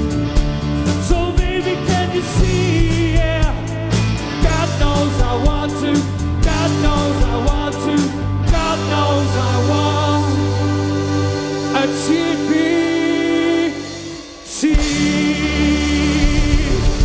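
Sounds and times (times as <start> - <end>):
live band playing: 0.0 - 17.0
person singing: 0.9 - 17.0.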